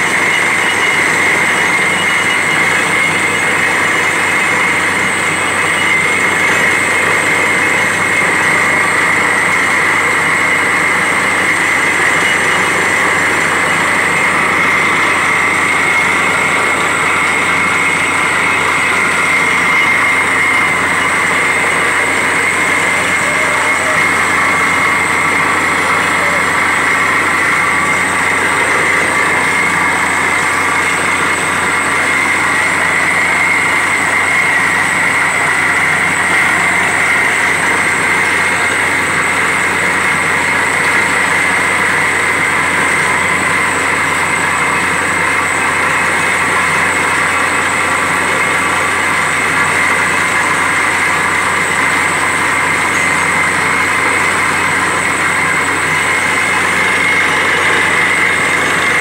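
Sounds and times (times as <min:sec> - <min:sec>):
drilling rig engine: 0:00.0 - 0:59.0.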